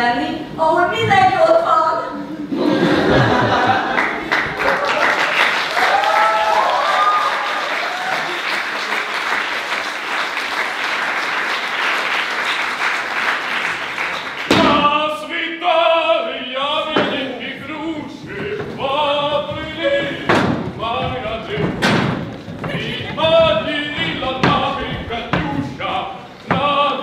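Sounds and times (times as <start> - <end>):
audience applauding: 3.2 - 14.5
voices cheering: 4.5 - 9.2
thump: 14.5 - 14.9, 20.2 - 22.8.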